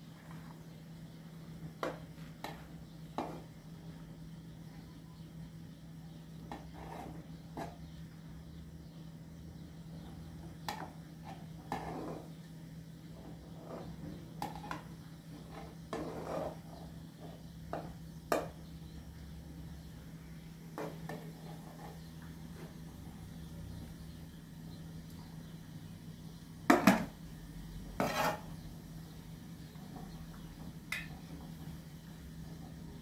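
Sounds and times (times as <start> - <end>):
metal spoon scraping a pot: 6.5 - 7.8, 13.6 - 16.8, 28.0 - 28.6.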